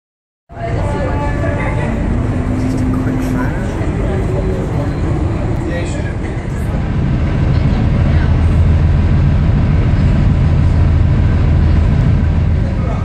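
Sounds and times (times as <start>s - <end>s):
ferry engine droning: 0.5s - 13.0s.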